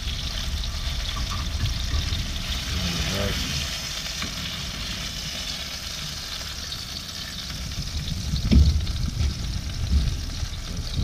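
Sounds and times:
fish sizzling in a frying pan: 0.0s - 11.0s.

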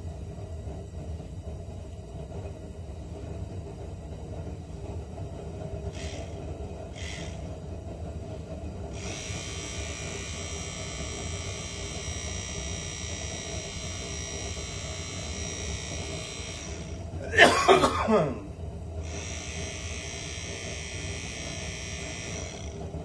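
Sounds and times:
electric motor hum: 5.6s - 17.4s, 18.1s - 23.0s.

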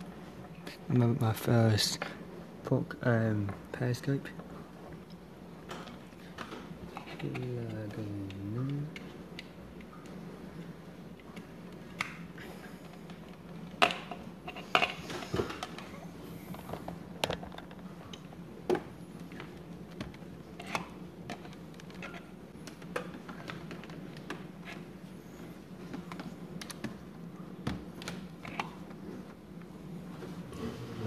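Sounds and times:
low steady hum: 0.0s - 31.0s
cables clicking and handling: 5.0s - 30.4s
objects clattering on wooden desk: 12.9s - 15.9s.

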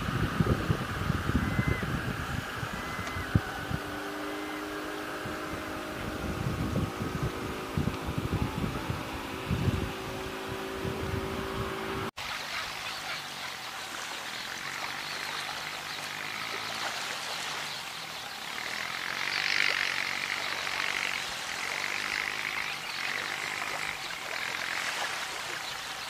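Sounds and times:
sandpipers chattering: 12.2s - 26.0s
small waves washing on sand: 12.2s - 26.0s.

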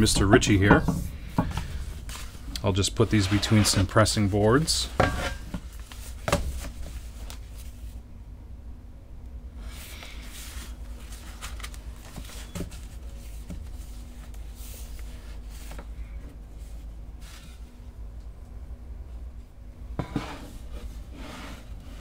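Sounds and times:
paper rustling: 10.4s - 15.8s.

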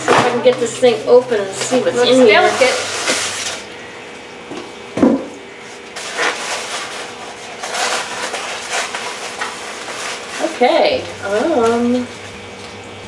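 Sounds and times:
thump: 5.0s - 5.3s
paper wrapping crinkling: 5.6s - 12.0s.

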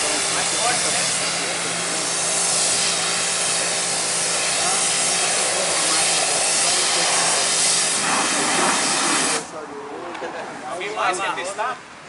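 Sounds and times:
pressure washer spray hissing: 0.0s - 9.5s.

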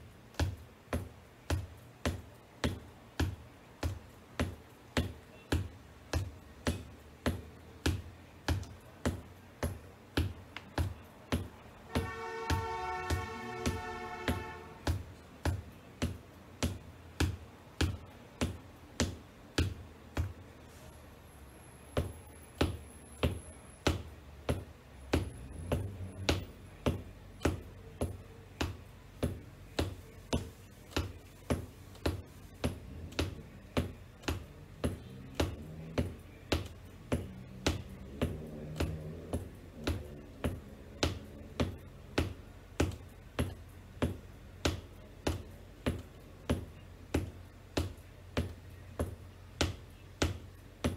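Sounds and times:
boots tapping on hardwood floor: 34.8s - 41.8s.

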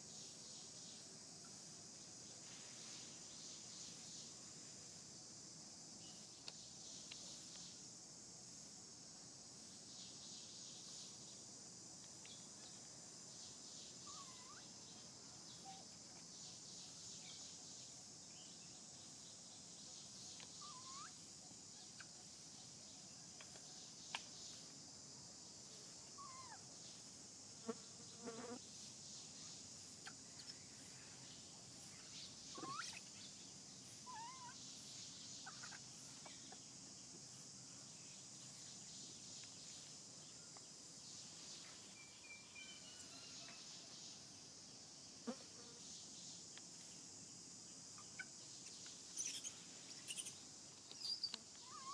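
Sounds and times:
insect buzz: 0.0s - 51.9s
high squeaking monkey calls: 14.1s - 14.7s, 20.6s - 21.2s, 26.2s - 26.6s, 32.5s - 33.1s, 34.0s - 34.6s, 35.4s - 36.6s, 49.1s - 50.4s, 51.0s - 51.9s.

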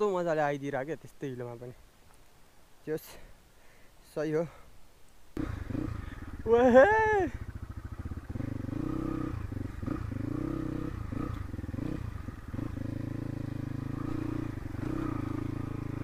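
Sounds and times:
dirt bike engine at low revs: 5.4s - 16.0s.

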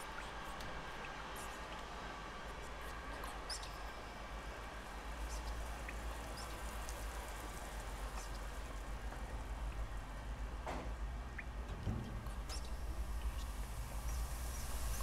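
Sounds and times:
faint drips and taps: 5.3s - 9.9s, 10.6s - 14.2s.

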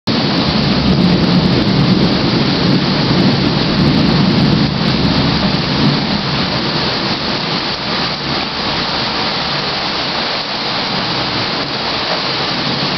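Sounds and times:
heavy rain: 0.1s - 12.9s
rolling thunder: 0.1s - 12.9s.

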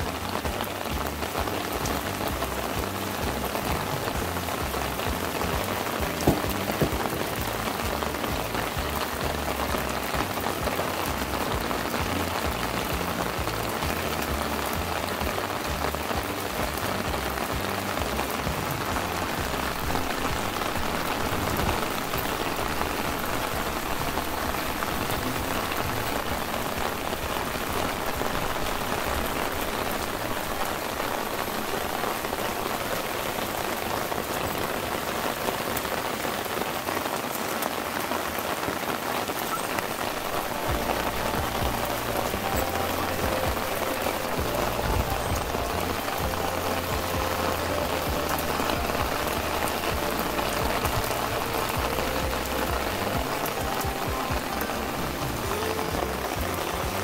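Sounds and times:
rain falling on plants: 0.0s - 57.0s
sharp taps: 6.0s - 7.3s.

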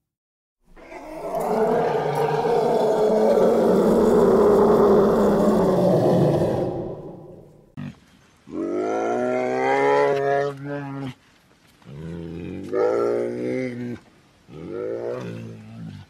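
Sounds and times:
deep moaning animal calls: 0.8s - 7.7s
large animal roaring: 0.8s - 7.8s.

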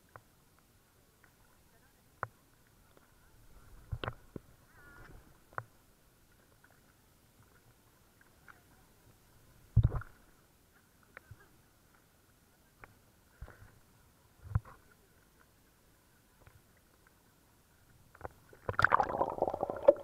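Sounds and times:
faint steady tone: 0.0s - 20.0s
waves slapping against camera: 18.3s - 20.0s.

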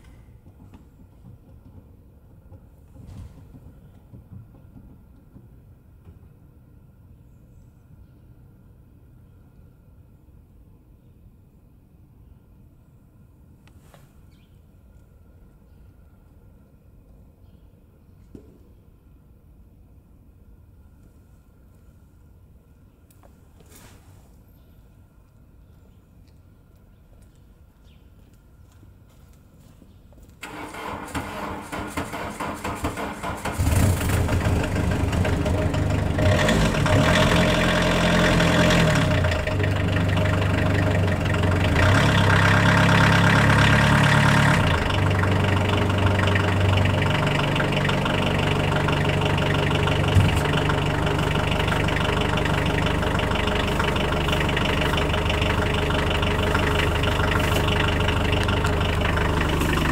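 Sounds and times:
diesel engine idling: 30.4s - 59.9s
starter motor cranking: 41.0s - 59.9s.

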